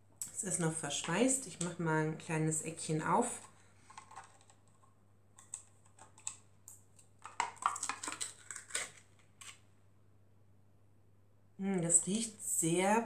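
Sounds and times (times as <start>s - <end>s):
shrink-wrap crinkling: 7.0s - 9.7s.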